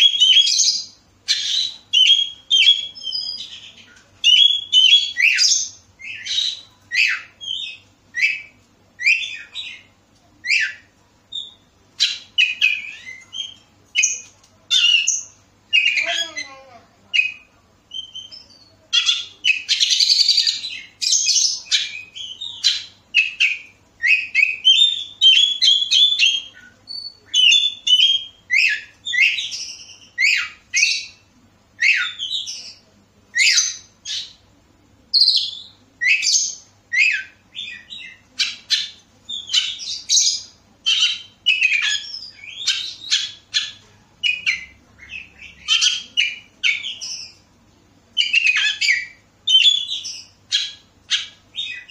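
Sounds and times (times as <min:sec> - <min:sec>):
bird singing whistled phrases: 0:00.0 - 0:16.4, 0:17.2 - 0:31.2, 0:48.2 - 0:51.9.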